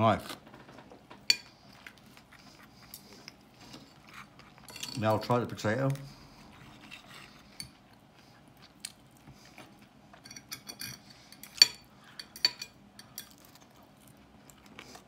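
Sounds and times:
knife and fork scraping plate: 0:06.4 - 0:07.8.

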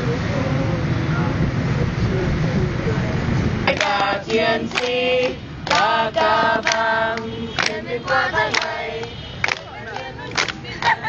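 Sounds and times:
group singing: 0:03.6 - 0:11.0
hand claps: 0:03.7 - 0:11.0.

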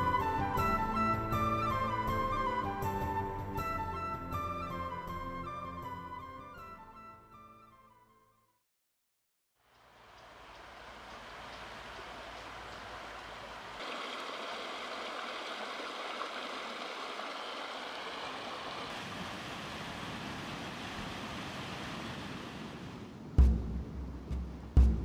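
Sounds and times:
stream rushing over rocks: 0:10.2 - 0:23.2.

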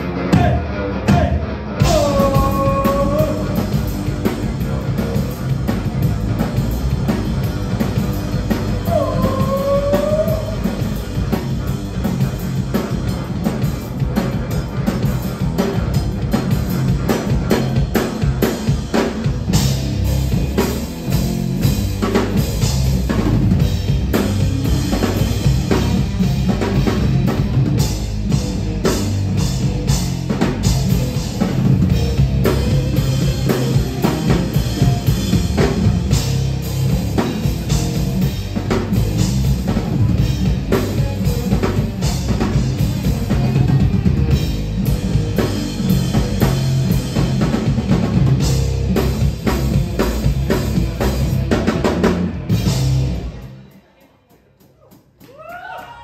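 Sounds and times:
electric guitar: 0:00.0 - 0:53.7
bass guitar: 0:00.0 - 0:54.0
drum kit: 0:00.0 - 0:56.0.

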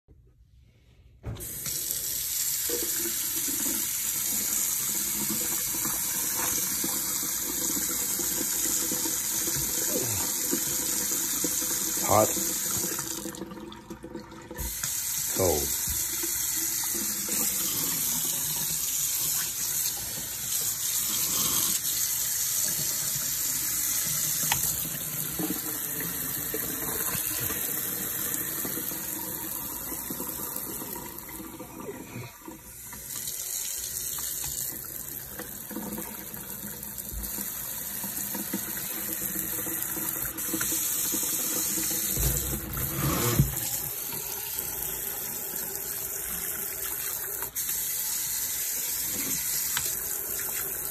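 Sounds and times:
faucet running into a sink: 0:01.3 - 0:50.9
hose knocking: 0:42.1 - 0:43.7.

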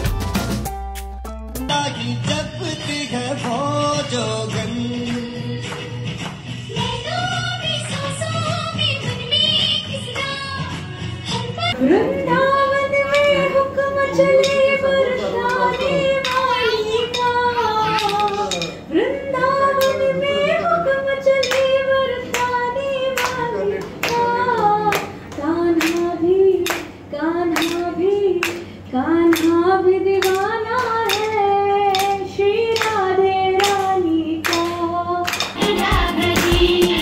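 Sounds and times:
hand claps: 0:02.8 - 0:06.9, 0:17.9 - 0:18.8, 0:21.4 - 0:28.7, 0:29.3 - 0:29.6, 0:30.2 - 0:37.0
woman singing long wavering notes: 0:11.7 - 0:23.3.

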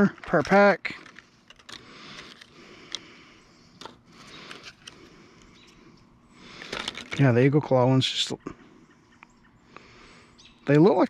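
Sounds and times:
plastic packs rustling: 0:06.5 - 0:07.2.

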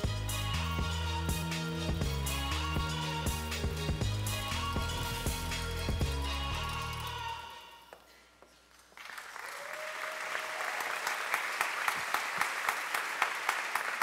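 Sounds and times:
intro music: 0:00.0 - 0:07.4
audience applauding: 0:08.9 - 0:14.0.

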